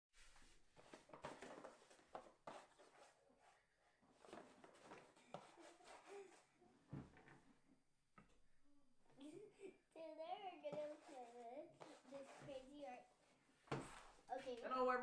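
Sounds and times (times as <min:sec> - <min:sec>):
child giggling: 0:09.2 - 0:10.1.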